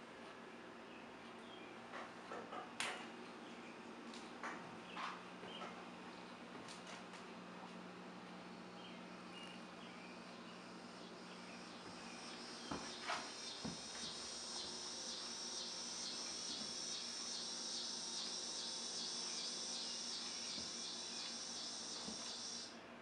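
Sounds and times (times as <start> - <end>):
insect chirping: 10.8 - 22.7.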